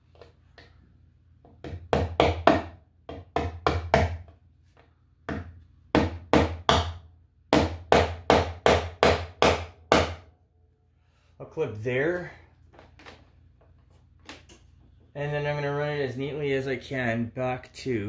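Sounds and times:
hammer tapping nail into wood: 5.3s - 10.2s.

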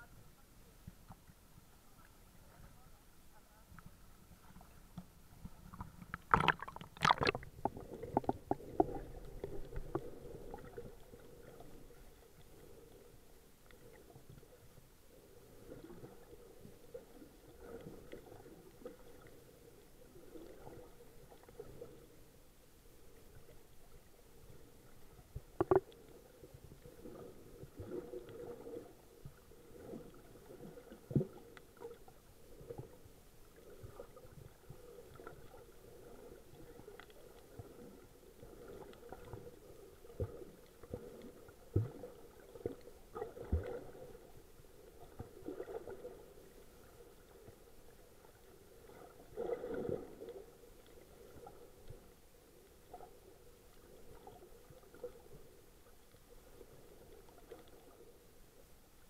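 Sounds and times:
underwater sloshing and gurgling: 0.0s - 59.0s
dull thumps underwater: 6.1s - 9.1s, 25.6s - 25.8s.

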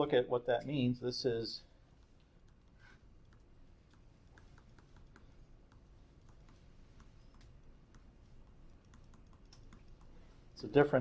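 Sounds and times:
low room noise: 0.0s - 11.0s
stylus tapping on screen: 3.3s - 10.2s.

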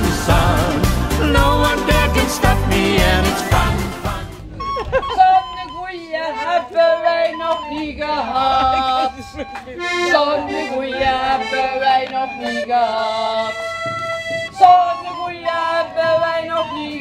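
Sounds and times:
recorder high held notes: 0.0s - 6.7s
accordion chords: 0.0s - 17.0s.

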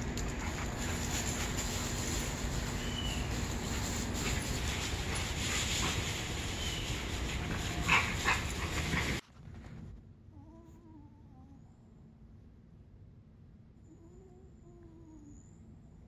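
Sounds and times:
dogs playing rough: 0.0s - 9.2s
steady outdoor hiss: 0.0s - 9.2s.

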